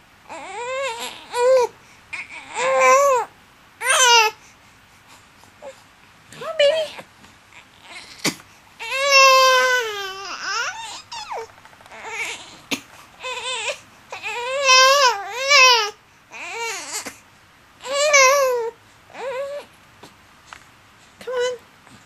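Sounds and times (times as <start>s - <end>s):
baby crying: 0.3s - 4.4s, 7.6s - 17.2s, 17.8s - 19.7s.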